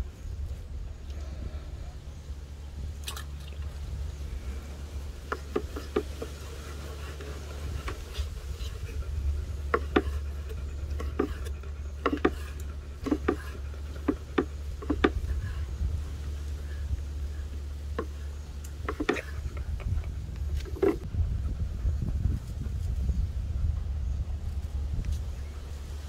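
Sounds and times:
steady low hum: 0.0s - 26.0s
knife against wooden board: 5.3s - 15.7s, 17.9s - 19.9s, 20.5s - 21.1s.

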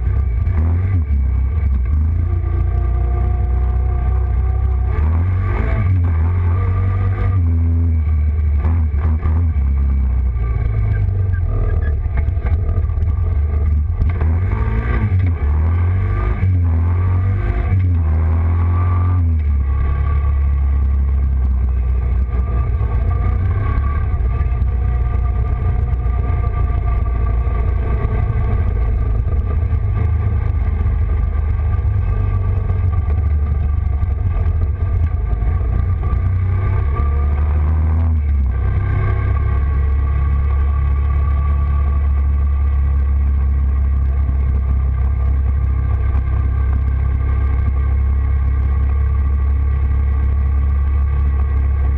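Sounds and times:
quad bike engine running: 0.0s - 51.9s.

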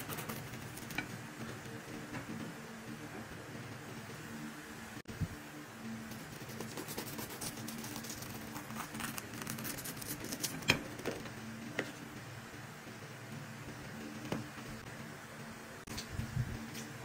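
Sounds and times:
steady low hum: 0.0s - 17.0s
knife crunching through pastry crust: 6.6s - 10.7s.

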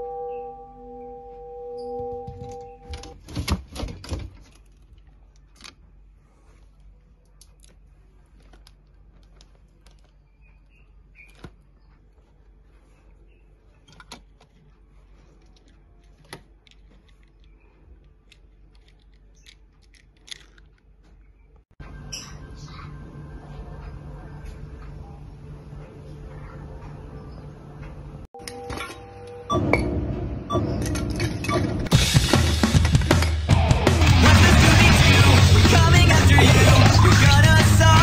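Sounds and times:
plastic toys clicking in glass cabinet: 13.8s - 21.0s.

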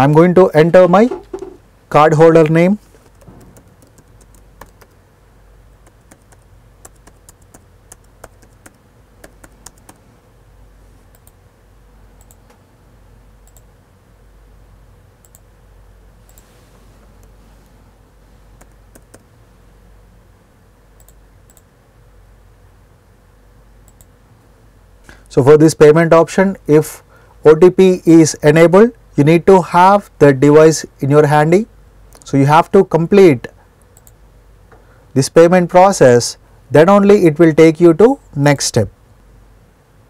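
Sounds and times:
low room hum: 0.0s - 40.0s
typing on laptop keyboard: 3.0s - 5.0s, 5.8s - 10.0s, 18.6s - 19.3s.

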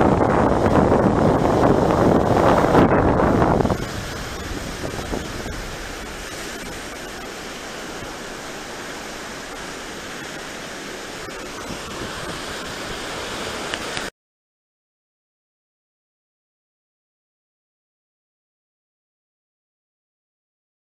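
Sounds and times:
surf breaking on beach: 0.0s - 14.1s.

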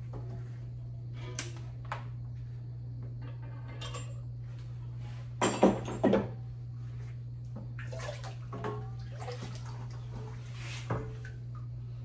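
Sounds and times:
steady low hum: 0.0s - 12.0s
water splashing and sloshing: 7.4s - 12.0s.

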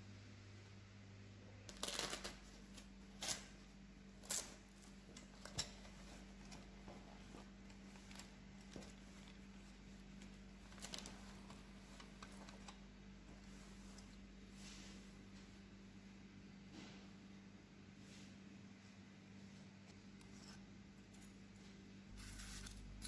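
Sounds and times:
steady low hum: 0.0s - 23.0s
plastic rustling: 5.9s - 12.7s.

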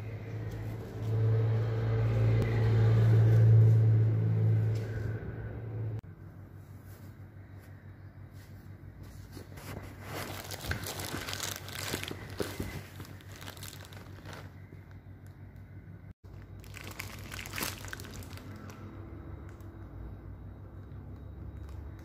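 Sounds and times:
steady low hum: 0.0s - 17.6s
plastic wrapping crinkling: 9.3s - 15.0s, 16.3s - 19.6s.

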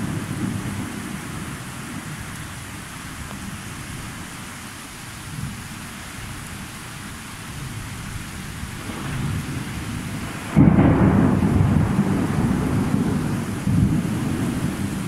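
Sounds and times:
steady rain: 0.0s - 15.0s
distant thunder rumble: 8.7s - 15.0s.

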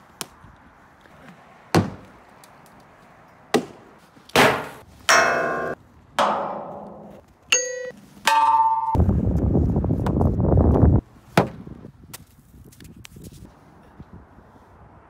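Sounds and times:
hockey puck dull knocks: 1.8s - 2.2s
hockey puck metallic clangs: 4.4s - 9.0s.

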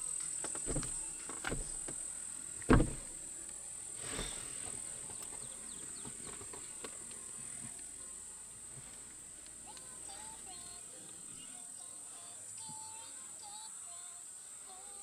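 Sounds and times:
insects droning: 0.0s - 15.0s
loud low thump: 0.7s - 1.9s, 2.7s - 3.2s.

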